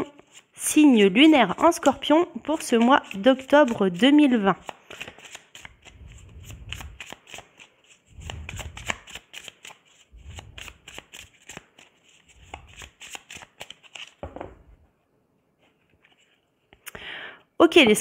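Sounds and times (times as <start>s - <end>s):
cards shuffled by hand: 1.5s - 14.4s.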